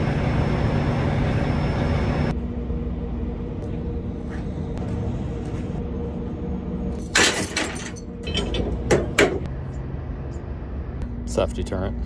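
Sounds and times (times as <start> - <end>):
sharp metal clanks: 7.0 - 9.5.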